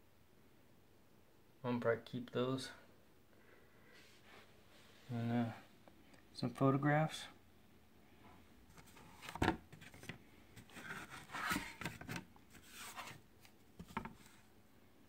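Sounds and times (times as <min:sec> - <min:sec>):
cardboard rubbing and scraping: 0:08.8 - 0:13.2.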